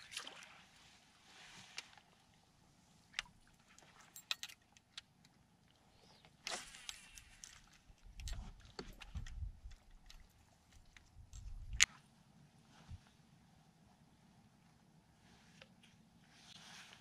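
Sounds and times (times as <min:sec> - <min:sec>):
fishing tackle clicking and rattling: 0:03.8 - 0:05.1.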